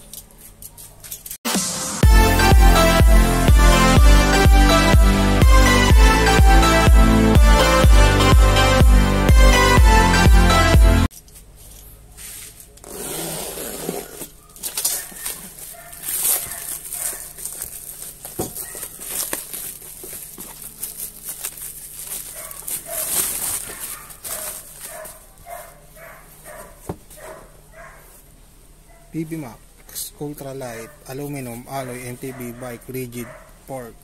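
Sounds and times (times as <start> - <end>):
box cutter slitting plastic wrap: 12.8 - 25.1
plastic wrap crinkling and tearing: 13.8 - 25.8.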